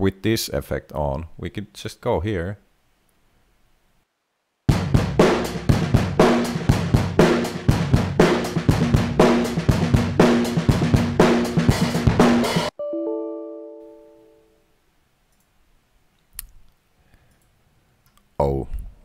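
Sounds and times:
overdriven drum loop: 4.7s - 12.7s
computer chime: 12.8s - 14.5s.

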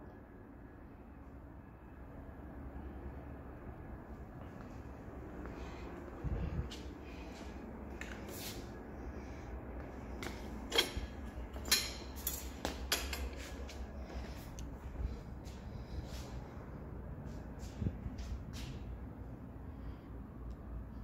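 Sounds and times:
metal handle clicking and clanking: 10.2s - 13.4s.

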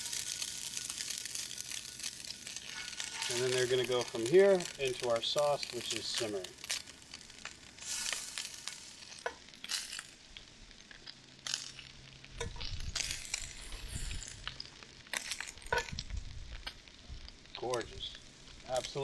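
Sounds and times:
meatballs sizzling in oil: 0.0s - 19.0s
metal tongs clinking on pan: 2.6s - 4.7s.

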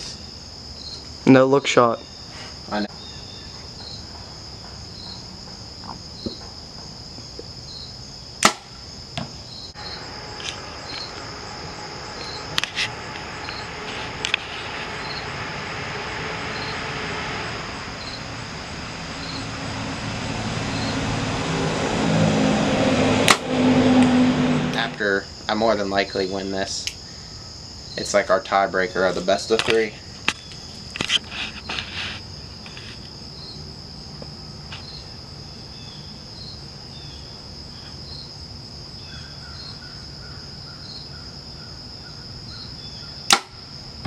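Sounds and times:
insects chirping: 0.0s - 44.0s
bow release snap: 8.4s - 9.3s, 43.3s - 43.5s.

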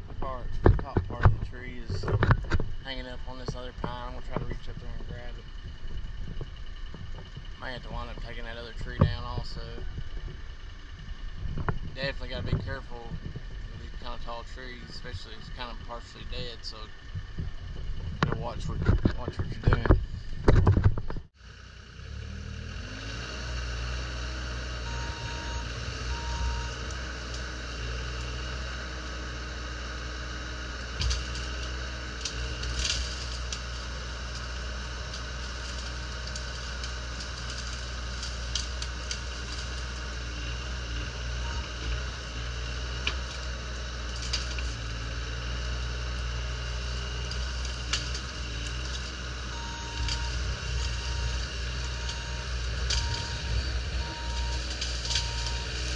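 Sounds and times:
excavator diesel engine running: 0.0s - 55.9s
wood cracking: 24.6s - 55.9s
short beeps: 24.8s - 26.8s, 41.4s - 41.8s, 49.6s - 51.4s, 52.0s - 55.8s.

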